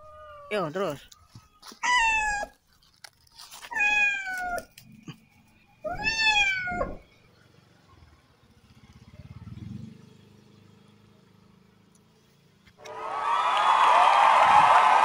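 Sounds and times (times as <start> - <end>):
cat meowing in distress: 1.8 - 2.6, 3.7 - 4.7, 5.9 - 7.0.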